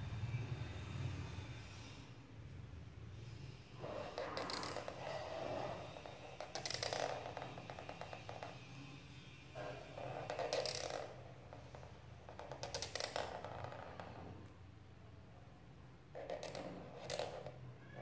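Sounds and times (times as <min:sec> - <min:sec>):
marker squeaking across paper: 0:03.8 - 0:14.3, 0:16.1 - 0:18.0.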